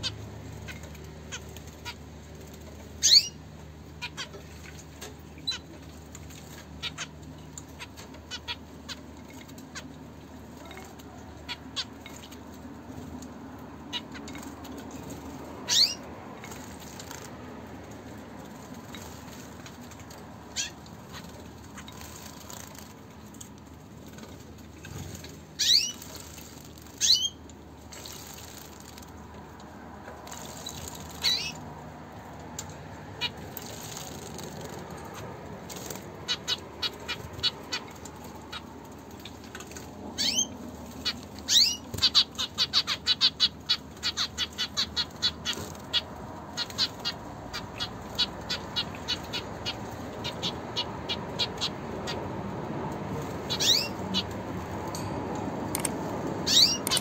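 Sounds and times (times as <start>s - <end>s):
birds splashing in water: 0.0s - 54.9s
finches chirping: 3.0s - 3.4s, 13.8s - 17.3s, 25.2s - 26.3s, 27.0s - 27.4s, 30.3s - 31.6s, 33.2s - 39.4s, 40.1s - 52.3s, 53.3s - 54.4s, 55.8s - 57.0s.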